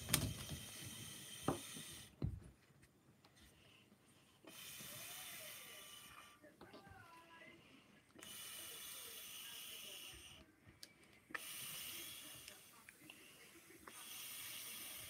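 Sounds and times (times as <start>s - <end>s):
breath puffs into balloon: 0.3s - 2.2s, 4.4s - 6.4s, 8.2s - 10.4s, 11.3s - 12.4s, 13.9s - 15.0s.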